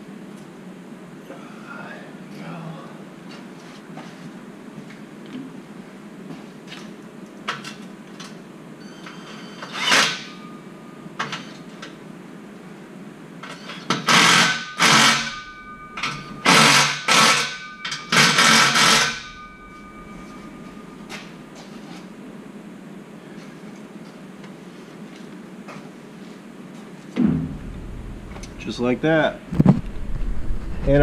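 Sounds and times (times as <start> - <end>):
clicks and clanks on metal: 11.2 - 12.0, 13.4 - 21.8
power tool whining in bursts: 13.8 - 20.0.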